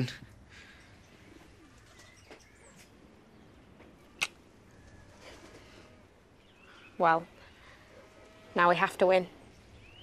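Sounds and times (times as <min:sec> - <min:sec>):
kiss smack: 0:04.2 - 0:04.4.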